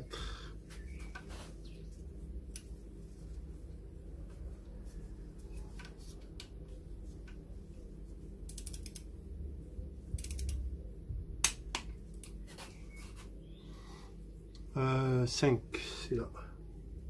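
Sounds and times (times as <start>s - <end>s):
torque wrench ratchet clicking: 8.5s - 9.0s, 10.2s - 10.6s.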